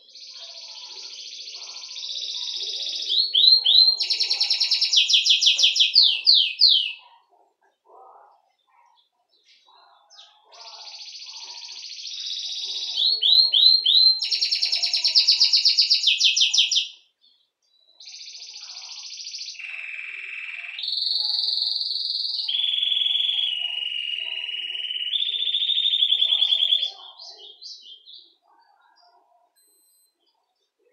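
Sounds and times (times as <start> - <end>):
canary singing trills: 0.0 - 30.9.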